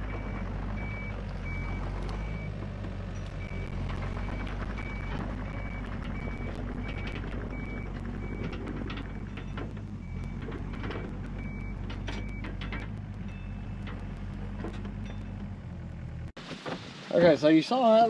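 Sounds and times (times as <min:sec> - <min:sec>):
diesel engine running: 0:00.0 - 0:16.4
travel alarm beeping: 0:03.2 - 0:15.4.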